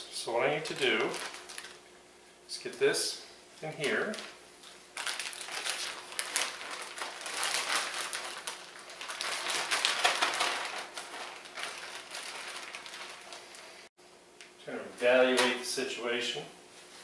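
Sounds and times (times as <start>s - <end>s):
plastic bag crinkling and rustling: 0.5s - 1.9s, 3.8s - 13.9s.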